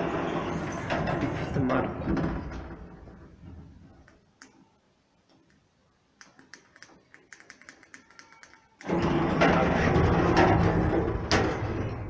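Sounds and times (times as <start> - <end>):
lift running noise: 0.0 - 2.0, 8.8 - 12.0.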